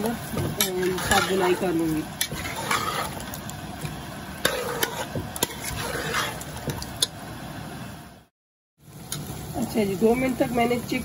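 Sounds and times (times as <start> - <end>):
food sizzling: 0.0 - 11.0
spoon scraping a metal pot: 0.6 - 3.4, 4.4 - 6.8.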